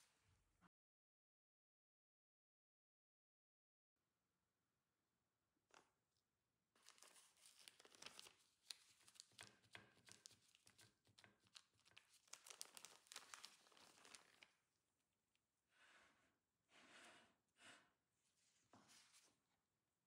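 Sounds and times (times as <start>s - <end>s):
plastic sheet crinkling: 6.8s - 14.5s.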